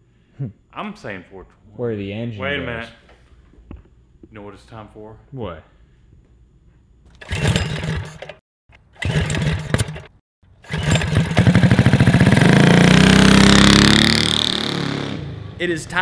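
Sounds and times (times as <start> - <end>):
small engine revving: 7.2 - 8.3, 8.9 - 15.6.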